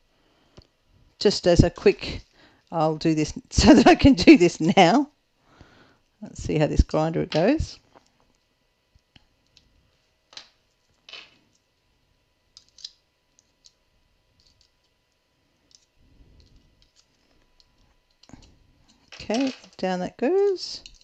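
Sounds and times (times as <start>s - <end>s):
batteries clicking and rattling: 14.4s - 21.0s.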